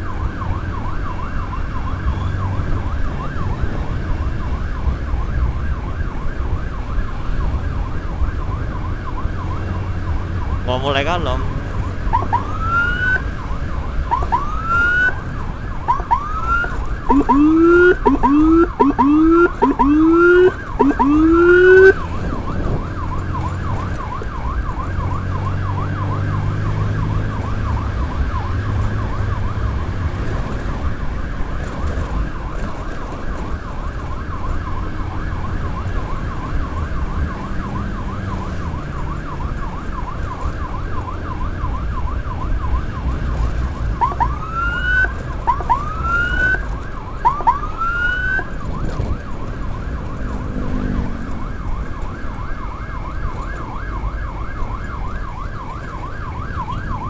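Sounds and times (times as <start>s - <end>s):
siren yelp warble: 0.0s - 30.0s, 34.4s - 43.3s, 44.0s - 57.0s
road noise: 0.0s - 57.0s
siren whoops: 0.0s - 57.0s
motorcycle engine: 48.2s - 54.3s.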